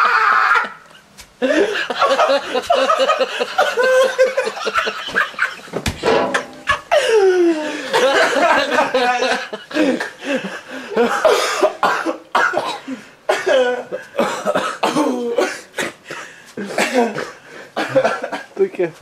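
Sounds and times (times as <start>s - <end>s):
people laughing hard: 0.0s - 5.8s, 6.7s - 11.8s, 16.6s - 18.5s.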